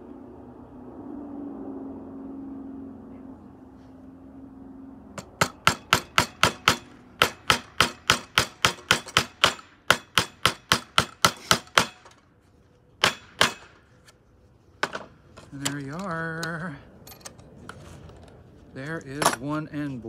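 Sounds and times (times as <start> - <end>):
hammer driving nails into wood: 5.3 - 12.2, 13.0 - 13.8.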